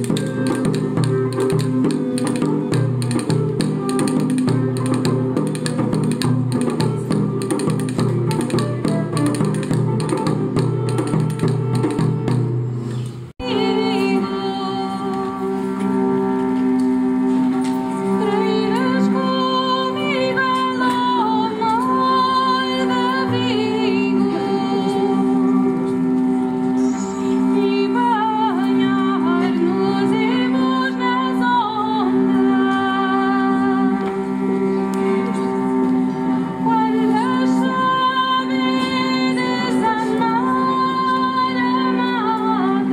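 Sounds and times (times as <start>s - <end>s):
plucked lute notes: 0.0s - 12.8s
held drone notes: 0.0s - 42.9s
women singing: 13.4s - 15.8s, 18.1s - 25.6s, 27.3s - 34.1s, 36.6s - 42.9s.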